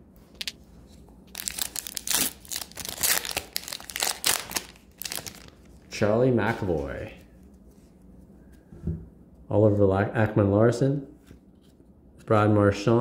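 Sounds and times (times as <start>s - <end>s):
foil wrapper crinkling: 1.3s - 5.8s.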